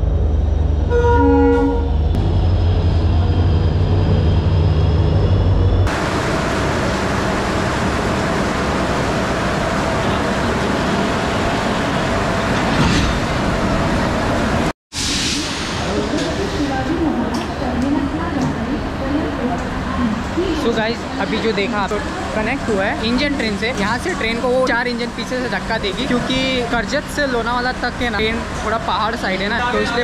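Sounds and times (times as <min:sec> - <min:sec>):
electric locomotive passing: 0:00.0 - 0:14.7, 0:15.4 - 0:30.0
train horn blast: 0:00.9 - 0:02.0.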